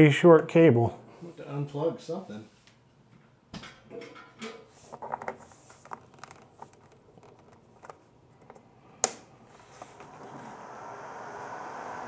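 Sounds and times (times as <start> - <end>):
power cable rustling and clicking: 4.9 - 10.4.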